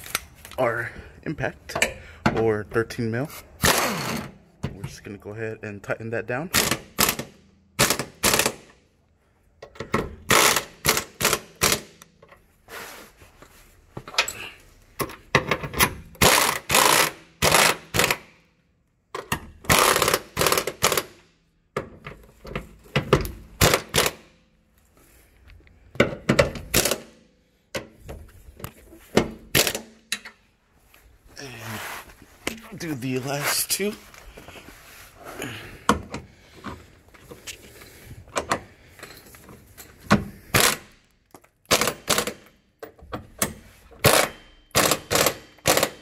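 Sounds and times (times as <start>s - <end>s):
air impact wrench hammering: 3.6s - 4.4s, 6.5s - 8.8s, 9.9s - 12.0s, 16.2s - 18.4s, 19.4s - 21.2s, 22.9s - 24.3s, 26.0s - 27.2s, 29.2s - 30.2s, 40.2s - 40.9s, 41.7s - 42.5s, 43.4s - 46.0s.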